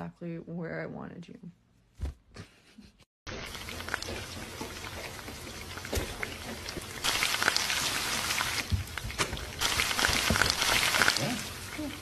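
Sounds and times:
food sizzling in oil: 0:03.3 - 0:12.0.

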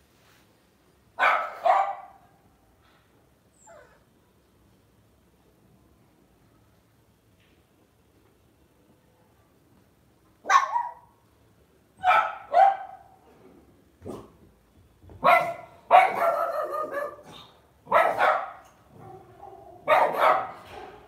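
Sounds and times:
puppy yapping: 0:10.4 - 0:11.1.

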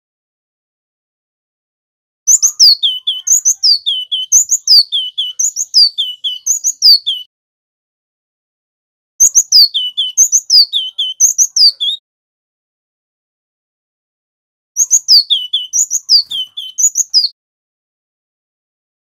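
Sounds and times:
bird singing whistled phrase: 0:02.3 - 0:07.3, 0:09.2 - 0:12.0, 0:14.8 - 0:17.4.

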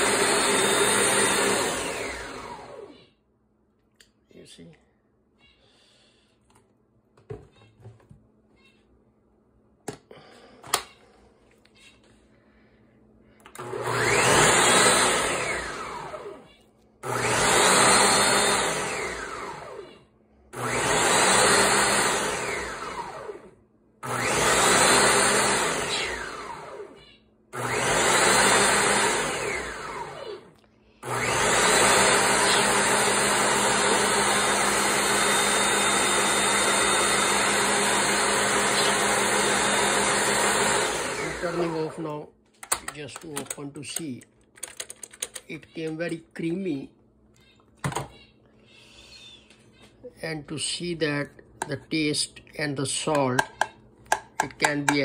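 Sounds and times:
blender motor running: 0:00.0 - 0:03.1, 0:13.6 - 0:42.2.

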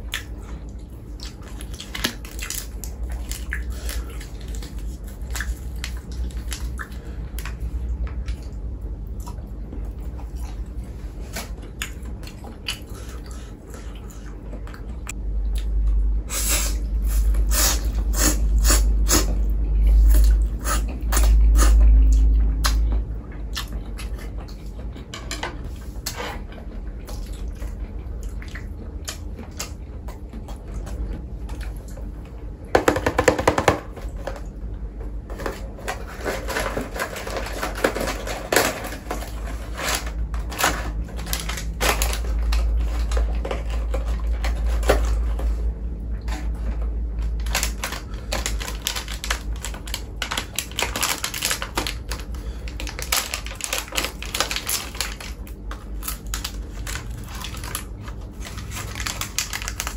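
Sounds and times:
packaging crinkling: 0:01.4 - 0:06.7, 0:35.3 - 0:45.6, 0:46.3 - 0:59.9
low rumble: 0:14.6 - 0:25.8
eating clicks and crackles: 0:47.2 - 0:59.9.

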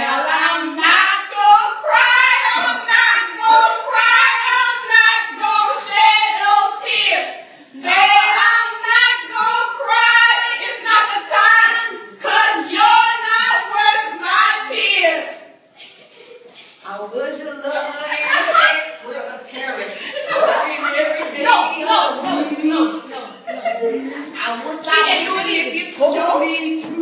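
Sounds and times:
people singing a song: 0:00.0 - 0:15.4.

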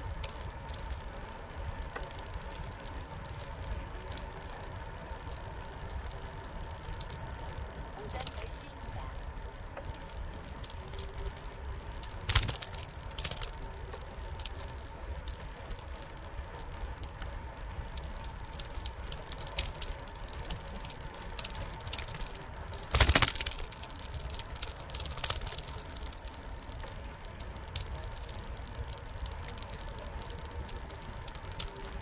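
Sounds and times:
bicycle tyres rumbling on concrete: 0:00.0 - 0:32.0
faint steady whine: 0:00.0 - 0:32.0
small rattles: 0:00.0 - 0:32.0
bike knocking over bumps: 0:21.8 - 0:24.4.

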